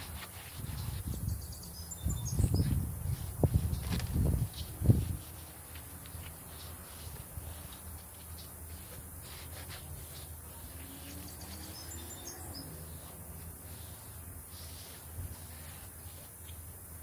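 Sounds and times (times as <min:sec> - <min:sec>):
cloth rubbing on rubber: 0:00.0 - 0:01.2, 0:02.6 - 0:16.7
bird chirps: 0:00.8 - 0:02.8, 0:10.5 - 0:13.1.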